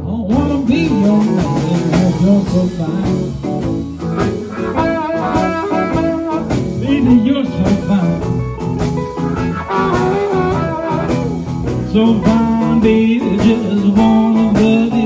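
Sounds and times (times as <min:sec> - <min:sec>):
live blues band: 0:00.0 - 0:15.0
harmonica bending notes: 0:03.7 - 0:11.8.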